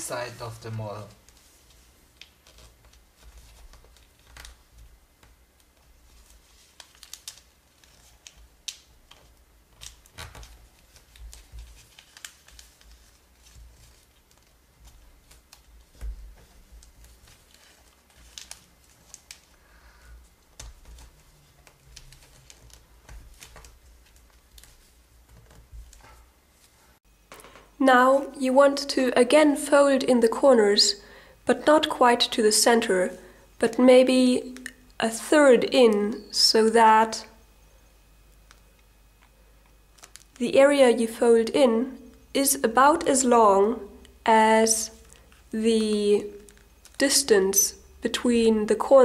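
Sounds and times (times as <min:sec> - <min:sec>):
paper crinkling and creasing: 0:00.2 - 0:27.0, 0:38.3 - 0:40.4, 0:44.9 - 0:47.0.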